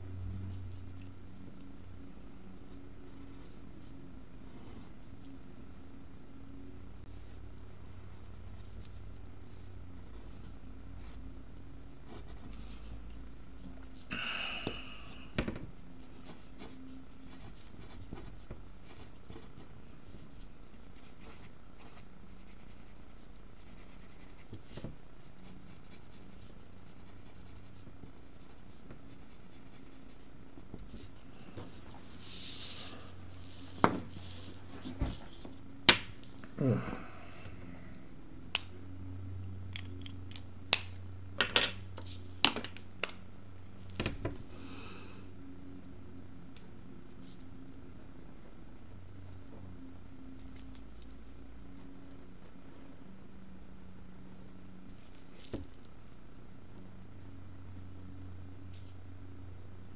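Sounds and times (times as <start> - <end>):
pencil scratching on paper: 15.7 - 30.3.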